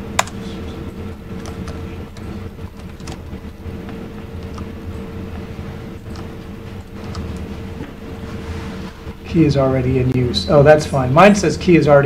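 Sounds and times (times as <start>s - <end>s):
low room hum: 0.0s - 12.0s
keyboard keystrokes: 0.2s - 0.4s, 1.4s - 4.7s, 7.0s - 7.5s.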